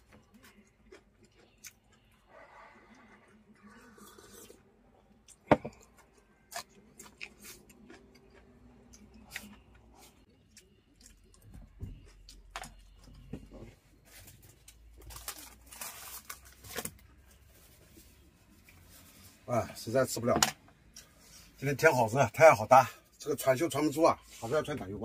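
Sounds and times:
paper tissue rustling: 0:15.0 - 0:18.2.

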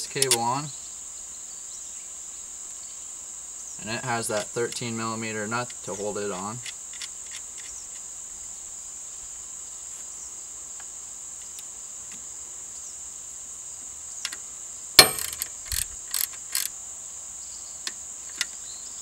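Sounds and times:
ratchet clicking: 0:00.0 - 0:00.4, 0:15.0 - 0:16.7
steady high-pitched hiss: 0:00.0 - 0:19.0
sharp metallic clack: 0:15.0 - 0:16.7.

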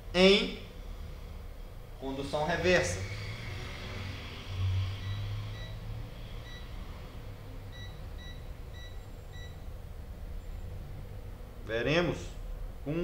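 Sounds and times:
faint low hum: 0:00.0 - 0:13.0
test meter beeping: 0:05.0 - 0:05.8, 0:06.4 - 0:06.8, 0:07.7 - 0:09.7.

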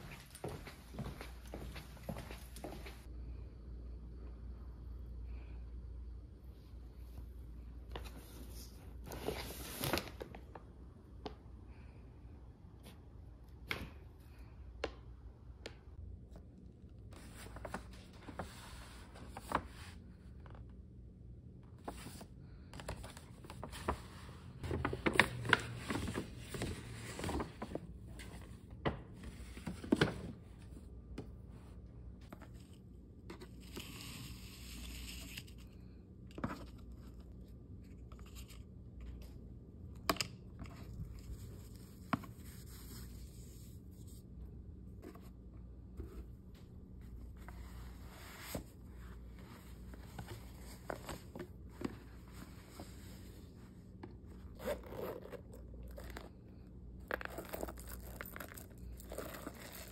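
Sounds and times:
paper rustling and crinkling: 0:21.8 - 0:28.6.

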